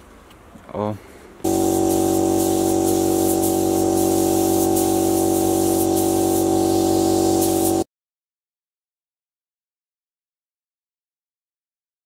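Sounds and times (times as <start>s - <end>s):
droning hum: 1.5s - 7.8s
spray gun hissing: 1.5s - 7.9s.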